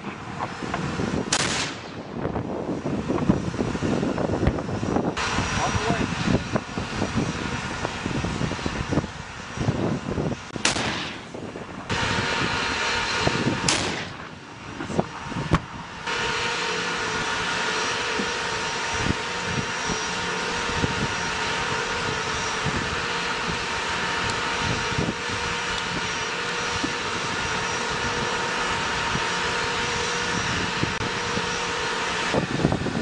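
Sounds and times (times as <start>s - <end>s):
turbine engine whine: 0.0s - 33.0s
sharp gun crack: 1.3s - 2.0s, 10.6s - 11.4s, 13.7s - 14.3s
tank gun blasts: 1.3s - 2.2s, 10.5s - 14.4s.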